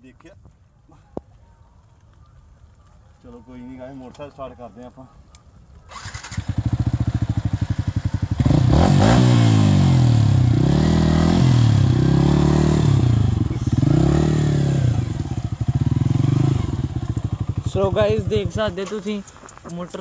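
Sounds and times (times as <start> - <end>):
motorcycle engine revving: 5.9 - 18.7.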